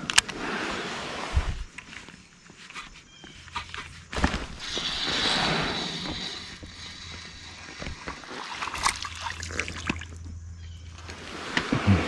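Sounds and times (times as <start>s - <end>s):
hiss: 4.5s - 7.6s
light water sounds: 7.0s - 10.3s.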